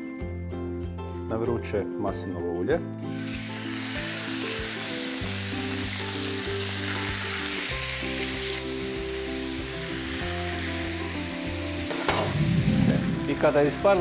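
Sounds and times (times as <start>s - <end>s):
meat sizzling in a frying pan: 3.1s - 12.4s.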